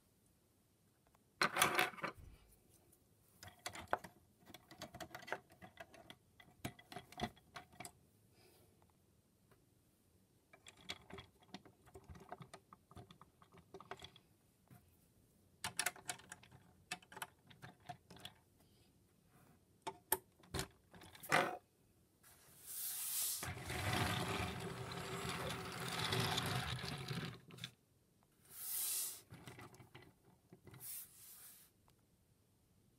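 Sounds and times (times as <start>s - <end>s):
plastic toy parts clicking: 15.6s - 18.4s.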